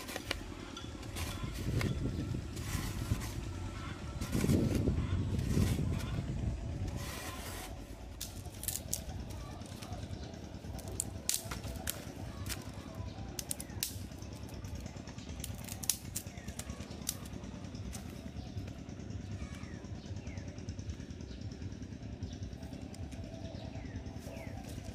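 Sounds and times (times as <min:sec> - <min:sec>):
soil being dug: 0:00.0 - 0:10.0
twig fire crackling and popping: 0:08.1 - 0:09.8, 0:10.7 - 0:12.7, 0:13.3 - 0:17.4.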